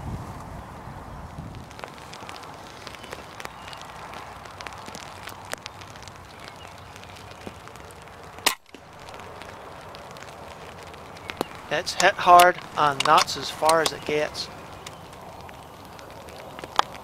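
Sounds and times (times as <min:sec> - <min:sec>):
light rain ticking: 0:00.3 - 0:17.0.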